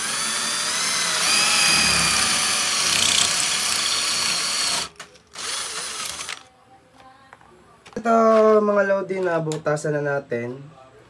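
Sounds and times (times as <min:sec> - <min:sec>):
cordless drill boring into wall: 0:00.0 - 0:06.4.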